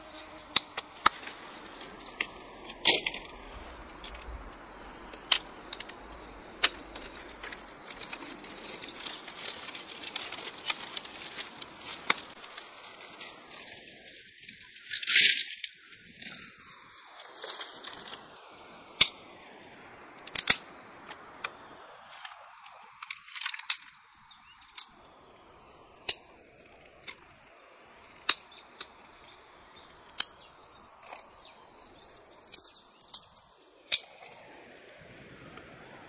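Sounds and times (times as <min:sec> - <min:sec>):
high insect drone: 0:00.0 - 0:12.0.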